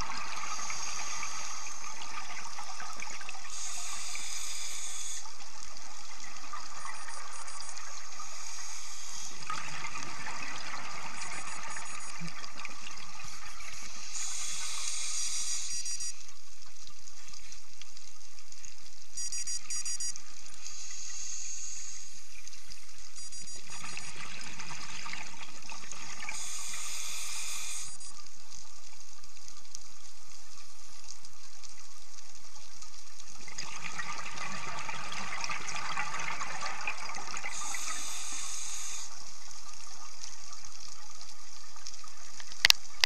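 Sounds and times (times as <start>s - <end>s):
exhaled bubbles rushing: 0.0s - 4.2s, 4.8s - 14.4s, 33.4s - 38.1s
regulator hiss on inhale: 0.4s - 1.9s, 3.4s - 5.4s, 8.2s - 9.4s, 13.7s - 16.1s, 20.6s - 22.2s, 26.3s - 28.1s, 37.5s - 39.3s.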